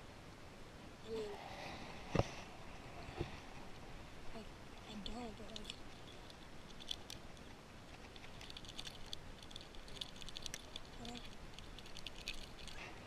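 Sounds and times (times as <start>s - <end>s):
hands handling wet fish: 4.8s - 13.0s.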